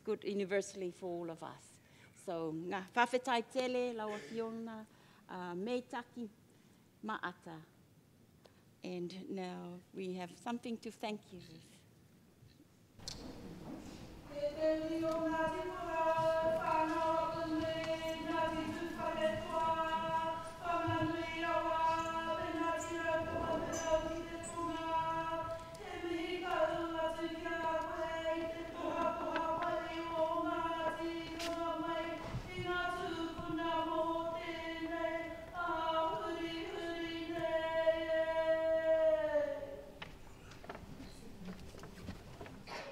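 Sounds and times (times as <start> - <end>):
group singing in unison: 14.2 - 40.0.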